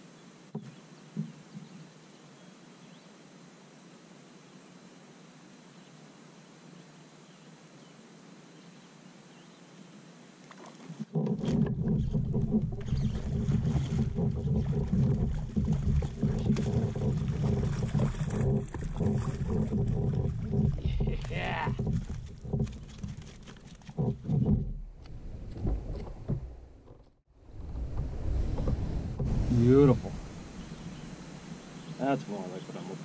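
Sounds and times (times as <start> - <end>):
faint hiss: 0.0 - 11.0, 27.6 - 33.0
rough rumbling handling noise: 10.9 - 32.0.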